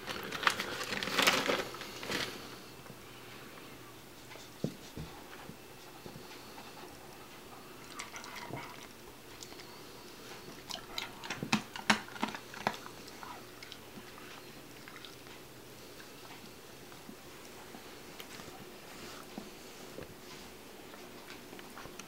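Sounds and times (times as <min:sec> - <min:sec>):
dog crunching a treat: 0:00.0 - 0:02.4, 0:10.4 - 0:15.4.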